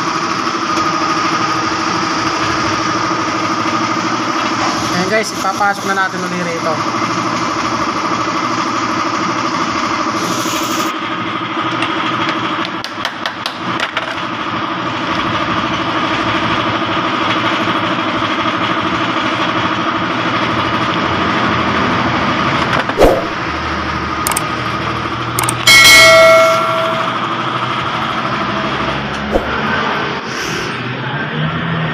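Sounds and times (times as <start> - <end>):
mechanical engine-like hum: 0.0 - 31.9.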